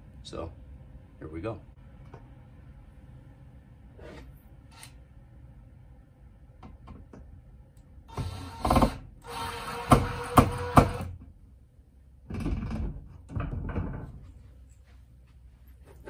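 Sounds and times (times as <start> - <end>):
cordless drill whining: 8.1 - 11.1.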